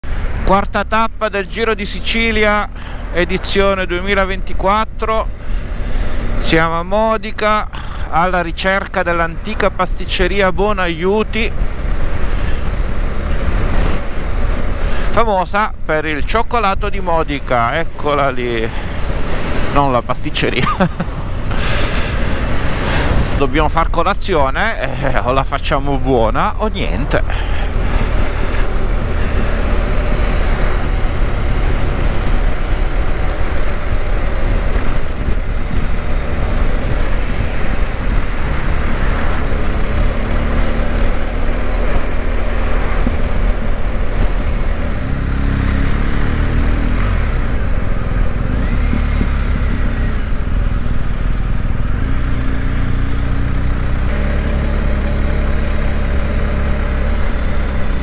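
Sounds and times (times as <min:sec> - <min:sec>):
wind and road noise: 0:00.0 - 0:58.0
motorcycle engine running: 0:26.2 - 0:58.0.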